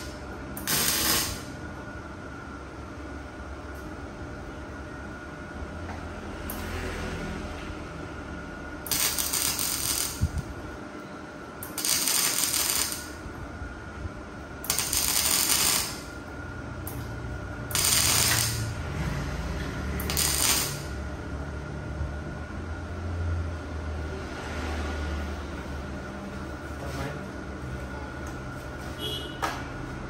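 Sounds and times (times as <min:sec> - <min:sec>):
welding crackle: 0:00.0 - 0:01.5, 0:08.8 - 0:10.5, 0:11.6 - 0:13.2, 0:14.6 - 0:16.2, 0:17.7 - 0:18.8, 0:20.0 - 0:21.0.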